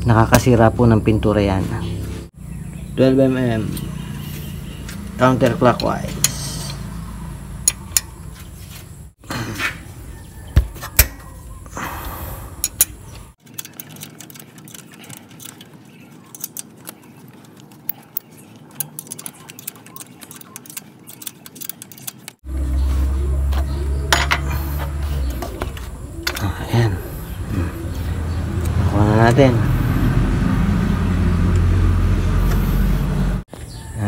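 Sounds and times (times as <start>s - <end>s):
wrench clicking on bolts: 12.6s - 15.7s, 16.3s - 22.4s
tool and part handling: 12.6s - 22.4s.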